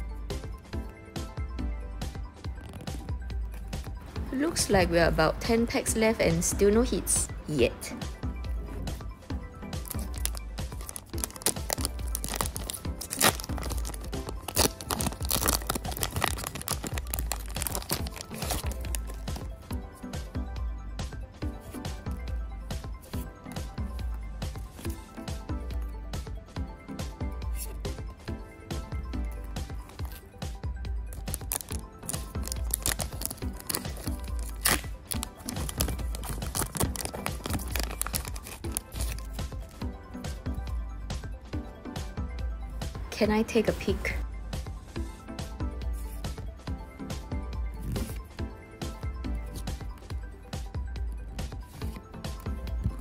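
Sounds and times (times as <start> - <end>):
background music: 0.0 - 53.0
foil pack tearing and crinkling: 9.8 - 19.4, 31.2 - 39.4
cards sliding out of wrapper: 9.9 - 19.4, 31.4 - 39.3.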